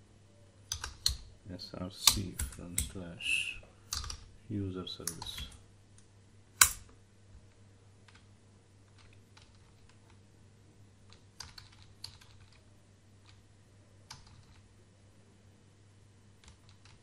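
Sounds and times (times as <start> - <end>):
faint low hum: 0.0 - 17.0
computer key presses: 0.7 - 1.3.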